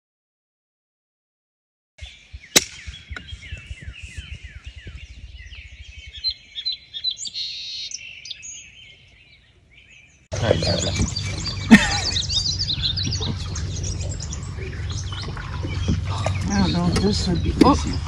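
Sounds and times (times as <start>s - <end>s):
high bird trills: 2.0s - 18.0s
songbirds chirping: 2.0s - 18.0s
sharp crack: 2.5s - 3.3s
low crackling: 10.3s - 18.0s.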